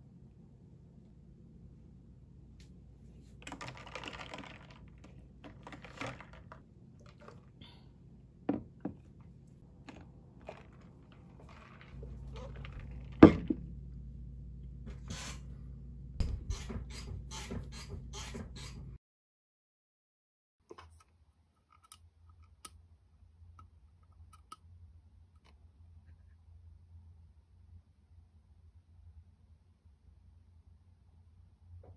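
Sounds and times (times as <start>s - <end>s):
background hum: 0.0s - 19.0s
plastic cup rustling: 3.1s - 7.6s, 8.5s - 13.7s.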